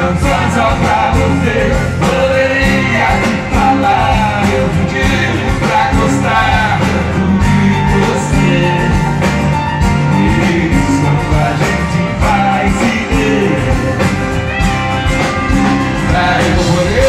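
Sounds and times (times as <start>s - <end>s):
man singing: 0.0s - 14.2s, 16.0s - 17.0s
acoustic guitar: 0.0s - 17.0s
band playing steady beat: 0.0s - 17.0s.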